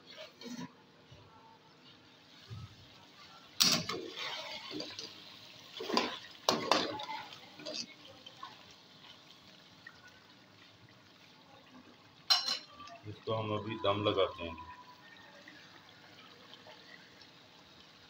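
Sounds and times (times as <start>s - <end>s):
metal spoon stirring in pot: 3.6s - 8.0s.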